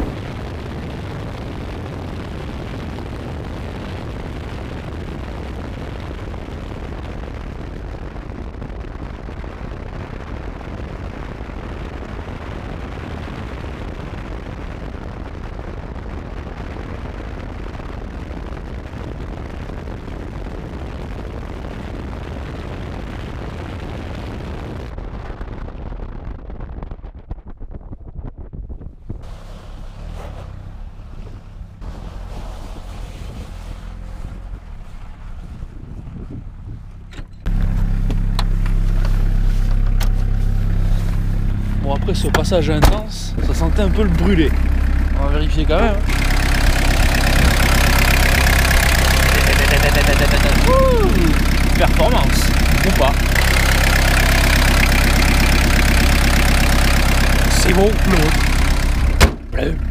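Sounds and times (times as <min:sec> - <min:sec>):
car engine pulling hard: 0:29.1 - 0:59.9
wind buffeting microphone: 0:30.2 - 0:37.6, 0:46.0 - 0:49.3.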